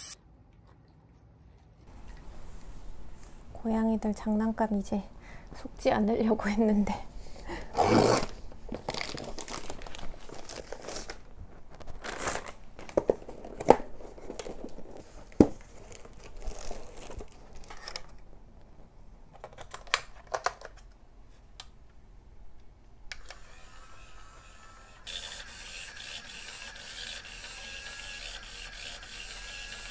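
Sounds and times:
plastic packaging crinkling: 8.1s - 18.2s.

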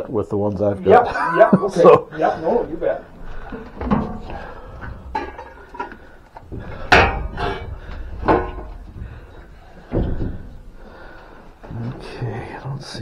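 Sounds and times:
junk clunking and knocking: 3.6s - 10.8s.

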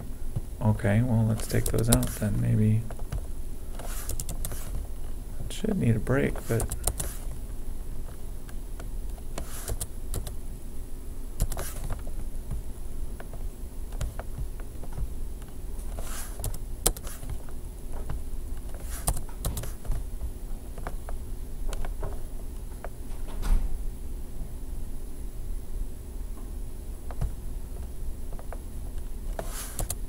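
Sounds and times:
low background hum: 0.0s - 30.0s
keyboard keystrokes: 1.4s - 2.2s, 3.8s - 4.8s, 6.5s - 7.2s, 9.4s - 10.4s, 11.4s - 12.0s, 16.3s - 17.4s, 18.6s - 20.0s, 29.7s - 30.0s.

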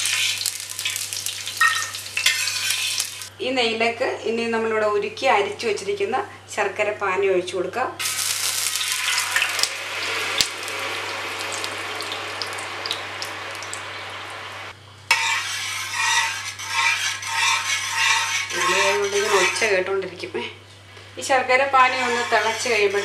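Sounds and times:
syrup sizzling in hot ghee: 0.0s - 3.3s, 8.0s - 14.7s
steel spatula scraping metal pan: 1.7s - 3.3s, 15.1s - 19.9s, 21.7s - 23.0s.

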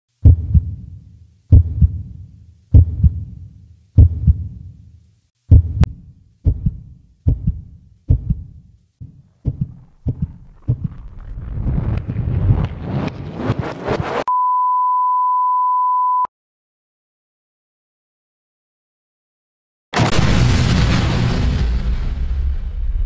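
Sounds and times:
heartbeat thumps: 0.2s - 4.7s, 5.5s - 12.7s.

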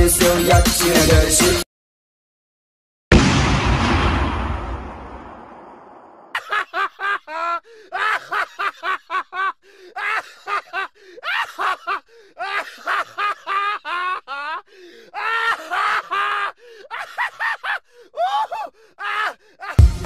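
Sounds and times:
bang: 3.1s - 6.3s
high-pitched laughter: 6.4s - 14.5s.

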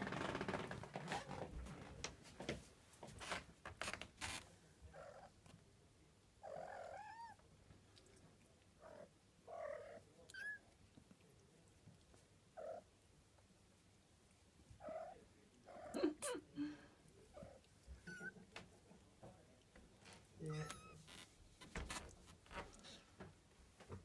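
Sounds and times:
kittens mewing: 17.3s - 18.5s, 20.4s - 21.1s.

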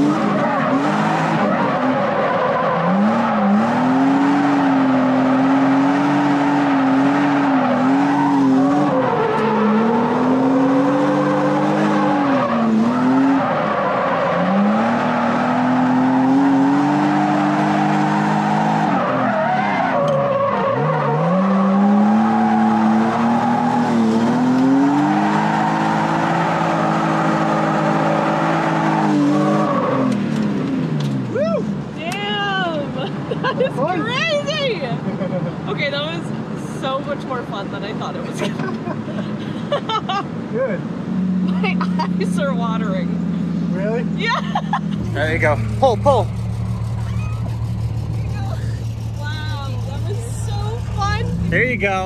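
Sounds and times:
car engine revving: 0.0s - 39.4s, 40.4s - 52.0s.

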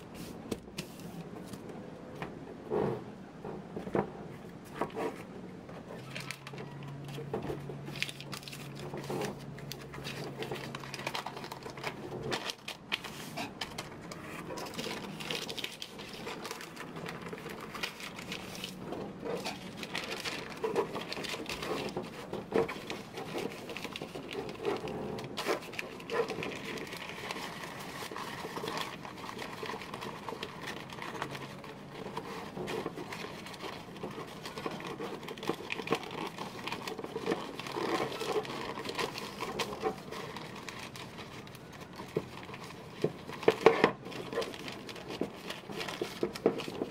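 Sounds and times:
low steady hum: 0.0s - 46.9s
wrapping paper crinkling: 5.9s - 46.9s.

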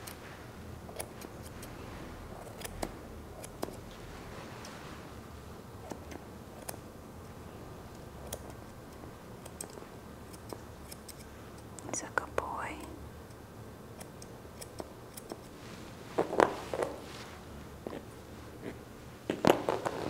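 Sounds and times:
grooming shears snipping: 2.4s - 3.9s, 9.4s - 11.8s, 14.0s - 15.6s.

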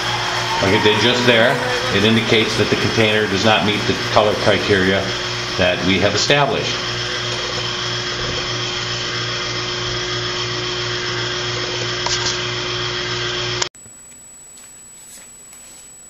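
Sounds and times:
conveyor line mechanical hum: 0.0s - 10.4s.

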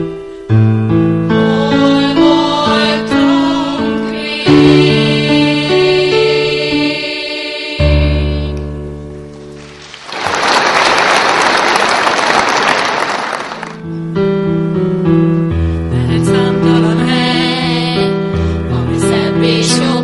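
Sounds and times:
audience applause: 9.6s - 13.8s.

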